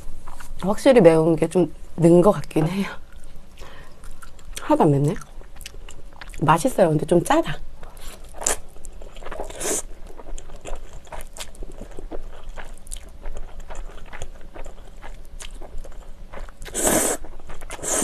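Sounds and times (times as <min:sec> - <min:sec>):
wet chewing with mouth clicks: 0:03.1 - 0:06.4, 0:07.8 - 0:18.0
slurping noodles: 0:16.7 - 0:18.0.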